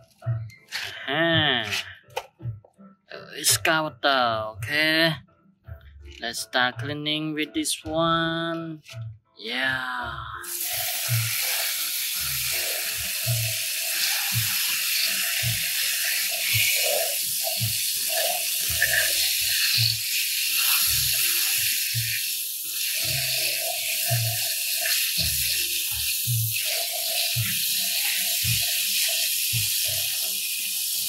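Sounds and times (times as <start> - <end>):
background music with steady beat: 0.0 - 31.0
hose spray nozzle hissing: 10.4 - 31.0
water jet washing mud off plastic: 10.5 - 31.0.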